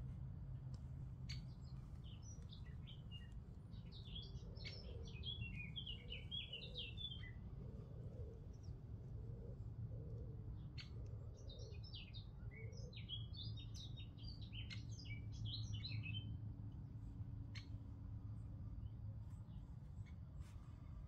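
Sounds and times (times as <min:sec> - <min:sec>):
low steady rumble: 0:00.0 - 0:12.4, 0:14.2 - 0:21.0
songbird singing: 0:01.2 - 0:16.4.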